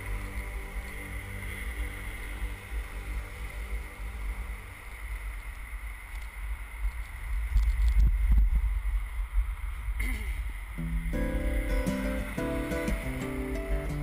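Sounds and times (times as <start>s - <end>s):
wind buffeting microphone: 4.0s - 14.0s.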